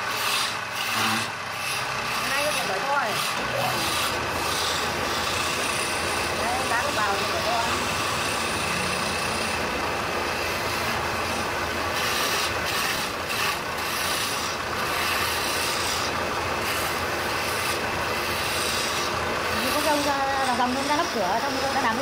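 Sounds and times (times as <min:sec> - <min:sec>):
chisel scraping spinning wood: 0:00.0 - 0:22.0.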